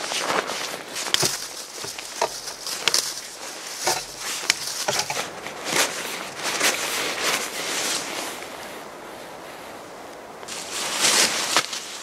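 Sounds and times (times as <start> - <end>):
dry leaves crunching underfoot: 0.0 - 8.3, 10.5 - 12.0
stick scraping and crackling: 0.5 - 6.9.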